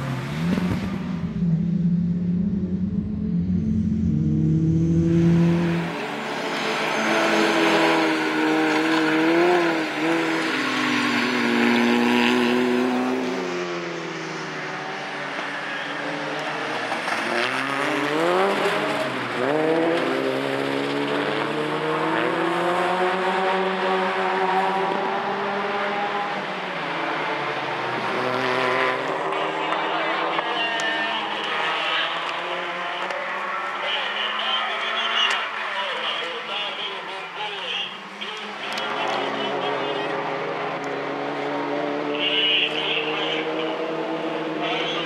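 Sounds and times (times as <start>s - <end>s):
race car engines: 0.0s - 45.0s
deep engine drone: 0.6s - 5.6s.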